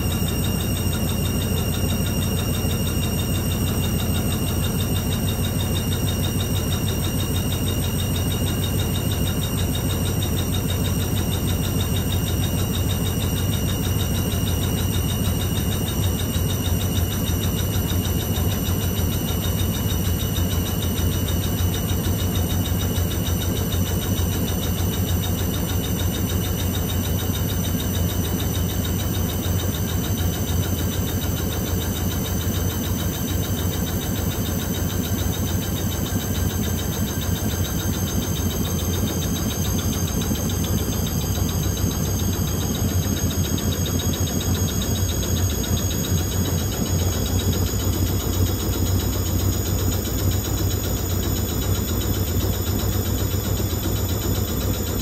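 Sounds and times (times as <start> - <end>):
high whine rising in pitch: 0.0 - 16.4
drain pump humming: 0.0 - 55.0.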